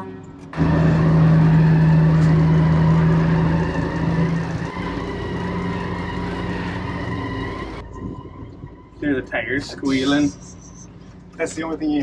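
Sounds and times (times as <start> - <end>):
tires squealing on concrete: 0.5 - 11.3.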